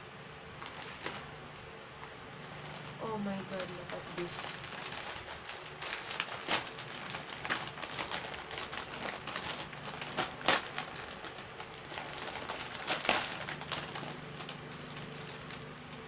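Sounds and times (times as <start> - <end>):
plastic bags crinkling: 0.6 - 1.3, 2.4 - 16.0.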